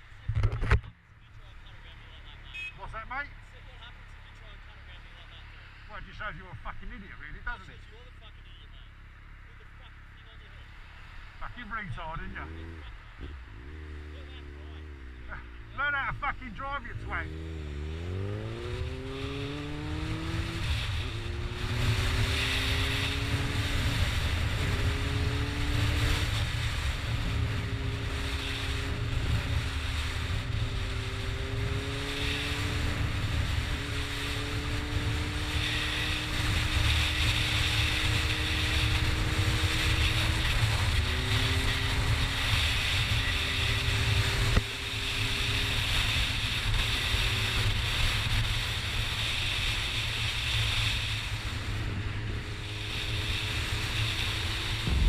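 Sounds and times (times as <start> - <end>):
motorcycle engine accelerating: 16.8 - 55.0
wind rushing: 50.3 - 55.0.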